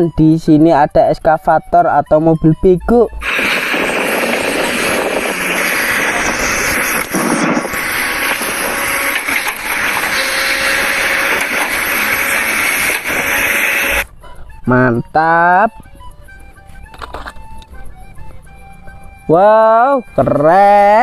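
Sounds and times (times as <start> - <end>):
excavator digging: 3.2 - 14.1.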